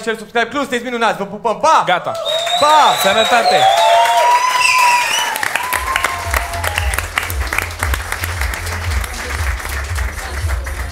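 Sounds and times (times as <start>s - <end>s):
audience applauding: 2.2s - 10.9s
outro music: 5.6s - 10.9s.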